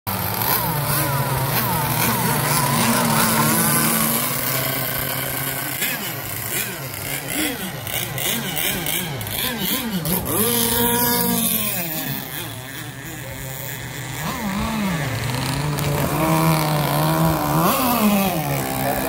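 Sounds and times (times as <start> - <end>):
model boat engines revving: 0.1 - 19.0.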